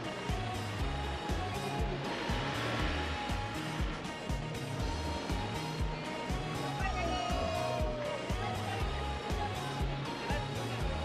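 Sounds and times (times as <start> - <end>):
music with steady drum beat: 0.0 - 11.0.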